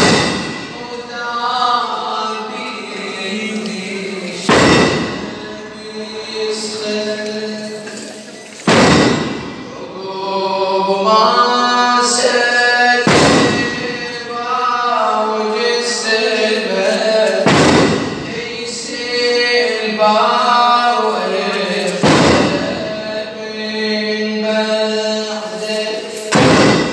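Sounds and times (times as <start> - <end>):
man chanting a lament: 0.0 - 8.4, 9.6 - 26.9
chains jangling crashes: 2.9 - 5.8, 6.7 - 9.6, 12.9 - 14.4, 16.3 - 18.6, 20.8 - 22.9, 25.1 - 26.9.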